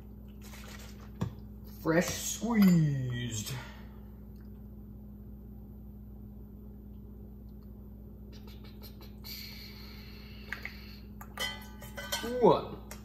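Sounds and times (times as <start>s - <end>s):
low hum: 2.5s - 12.2s.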